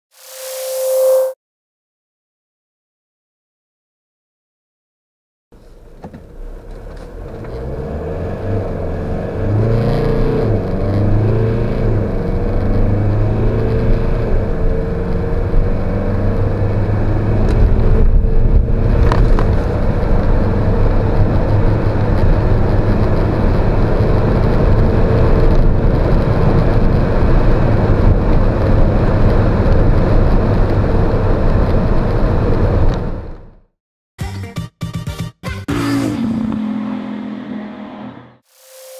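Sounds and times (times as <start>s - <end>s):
diesel engine accelerating: 5.6s - 33.4s, 35.7s - 38.4s
road and wind noise: 5.6s - 33.6s, 35.8s - 38.4s.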